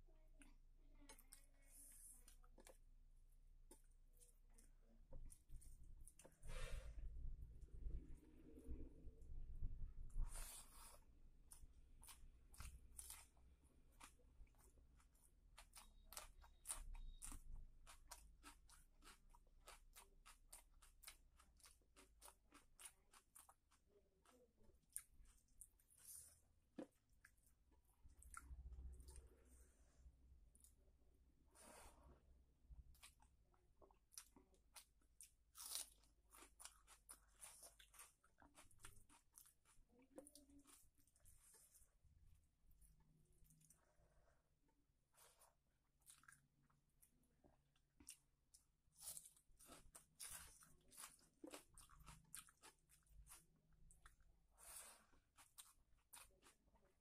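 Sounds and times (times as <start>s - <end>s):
person chewing crunchy food: 10.0s - 29.4s, 32.8s - 44.4s, 45.1s - 57.0s.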